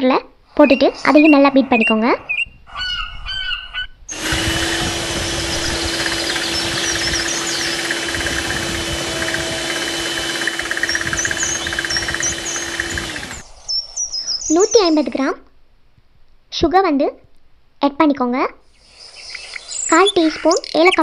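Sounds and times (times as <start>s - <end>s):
electric hand mixer whirring: 4.1s - 13.5s.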